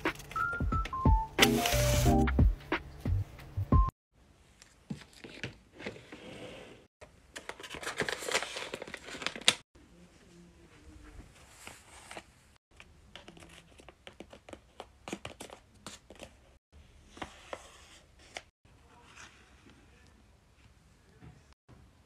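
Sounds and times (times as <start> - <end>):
paper crinkling: 7.4 - 9.6.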